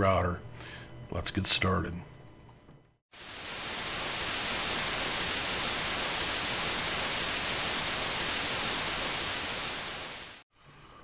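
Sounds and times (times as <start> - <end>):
tv static hiss: 3.1 - 10.4.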